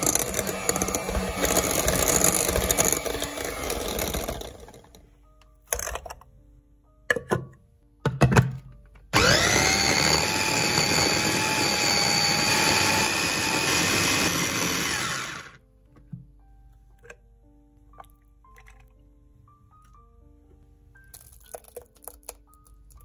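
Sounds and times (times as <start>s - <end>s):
blender motor whining: 0.0s - 4.8s, 9.2s - 15.6s.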